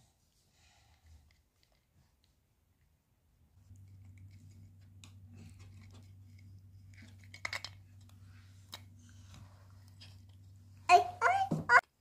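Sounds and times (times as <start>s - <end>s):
low steady hum: 2.7s - 11.8s.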